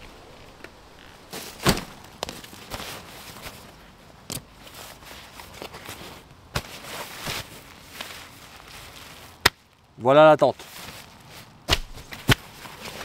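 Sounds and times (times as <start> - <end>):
backpack thudding on dry leaves: 0.0 - 3.7, 10.7 - 13.0
fabric rustling: 0.0 - 9.4, 10.6 - 13.0.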